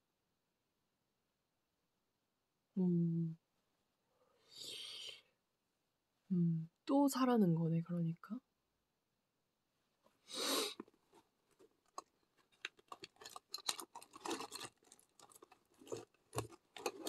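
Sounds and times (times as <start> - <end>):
items clicking and tapping: 10.8 - 17.0.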